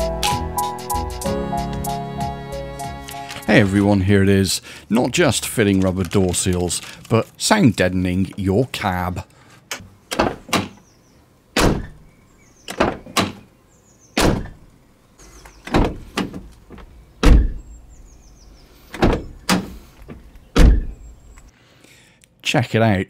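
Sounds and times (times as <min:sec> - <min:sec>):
van door slamming: 0:10.2 - 0:10.8, 0:11.6 - 0:12.0, 0:12.7 - 0:13.4, 0:14.2 - 0:14.6, 0:15.7 - 0:16.5, 0:17.2 - 0:17.7, 0:19.0 - 0:21.1.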